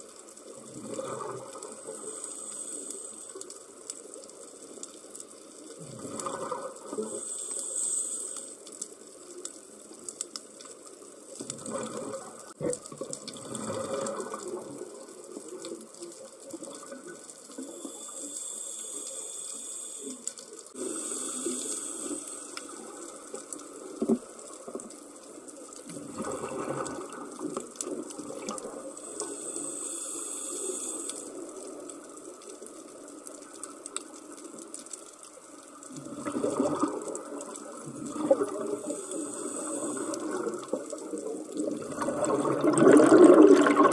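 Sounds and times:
exhaled bubbles rushing: 0.6 - 1.9, 5.8 - 7.0, 11.5 - 15.1, 25.9 - 28.9, 35.9 - 43.9
regulator hissing inhalations: 1.8 - 3.4, 7.0 - 8.7, 17.6 - 22.8, 29.0 - 31.5, 38.8 - 40.6.

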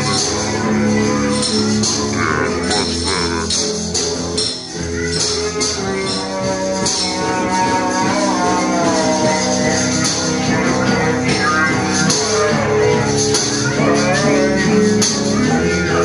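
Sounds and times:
guitar: 0.0 - 16.0
jingling percussion: 0.0 - 16.0.

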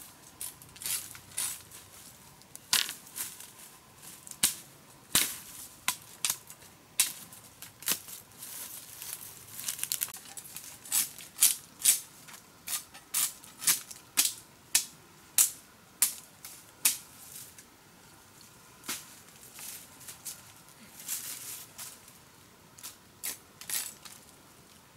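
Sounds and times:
hoe chopping dry bamboo leaves: 2.7 - 3.5, 4.3 - 8.2, 12.7 - 17.1.

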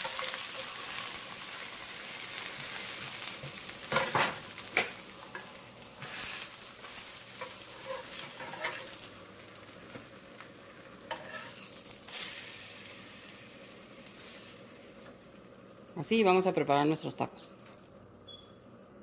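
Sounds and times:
tortillas sizzling in oil: 0.0 - 16.4, 17.7 - 18.8
metal spatula scraping pan: 7.4 - 9.0, 11.1 - 11.7.

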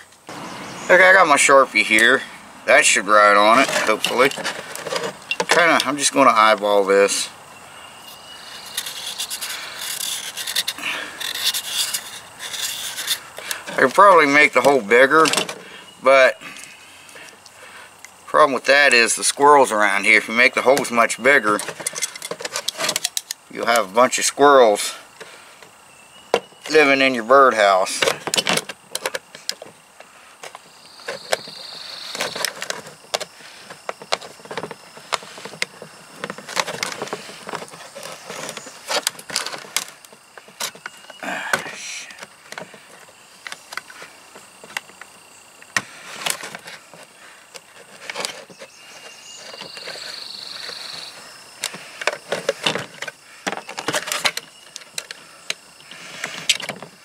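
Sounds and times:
knife scraping plastic: 3.5 - 5.6, 8.1 - 13.9, 30.4 - 41.0.

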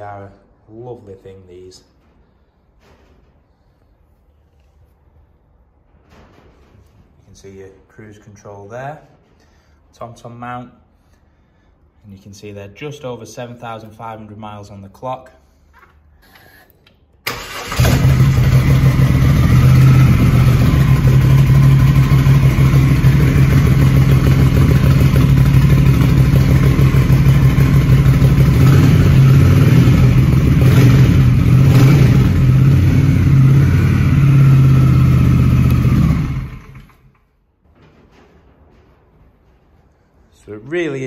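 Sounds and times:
motorcycle engine starting and running: 17.3 - 37.3.

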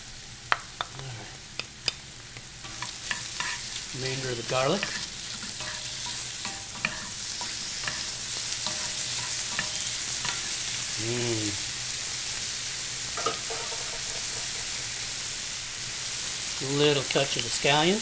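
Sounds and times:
shrimp sizzling in frying pan: 0.0 - 18.0
spatula tapping and scraping pan: 2.7 - 3.7, 4.8 - 10.5, 13.2 - 15.0.

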